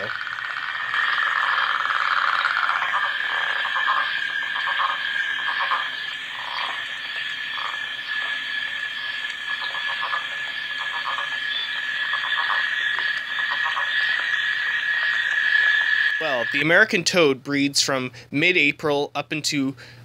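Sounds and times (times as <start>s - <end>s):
frog calling rattling bursts: 0.0s - 16.9s
steady high-pitched tone: 0.0s - 16.9s.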